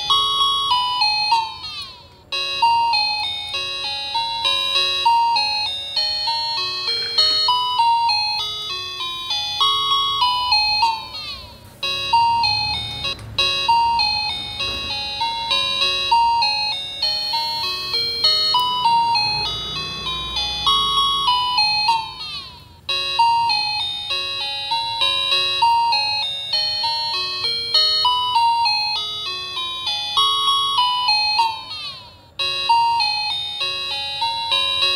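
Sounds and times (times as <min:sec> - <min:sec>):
bright plinking melody: 0:00.0 - 0:34.9
gliding notes: 0:08.4 - 0:23.2.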